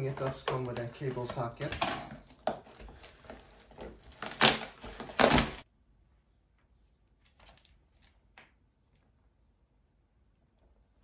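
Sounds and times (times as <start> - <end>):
cardboard and plastic rustling: 0.0 - 5.6.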